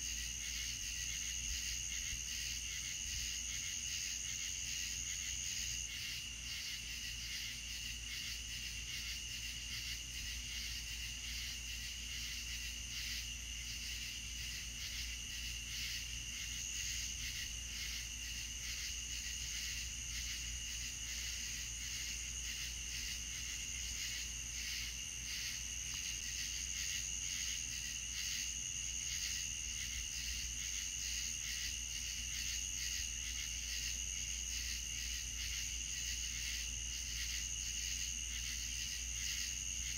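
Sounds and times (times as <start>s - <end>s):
night insects chirping: 0.0s - 39.9s.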